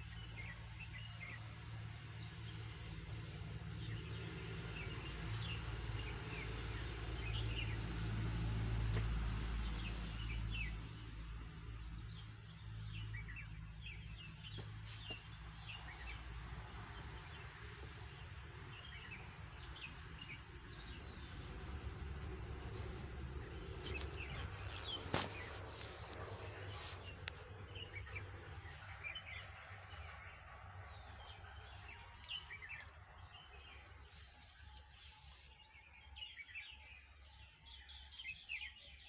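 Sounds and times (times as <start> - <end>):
low steady rumble: 0.0 - 37.8
small birds chirping: 8.8 - 39.0.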